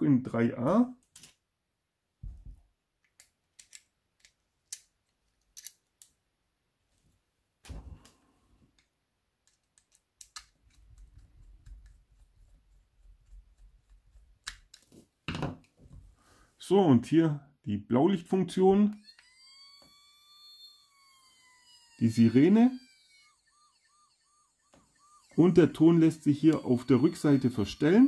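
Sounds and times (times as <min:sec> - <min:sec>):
plastic toy parts clicking: 0:03.0 - 0:06.2, 0:09.4 - 0:10.8.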